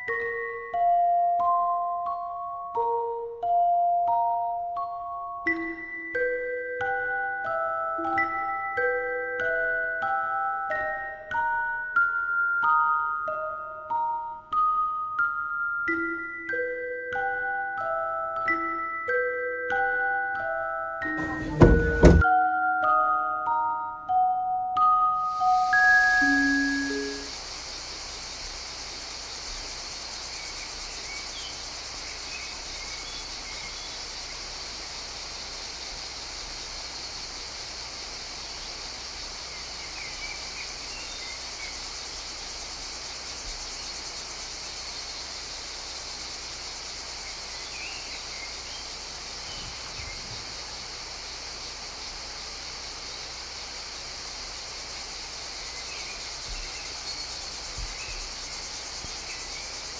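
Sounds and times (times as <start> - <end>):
crickets trilling: 25.0 - 59.9
short insect chirps: 25.2 - 59.9.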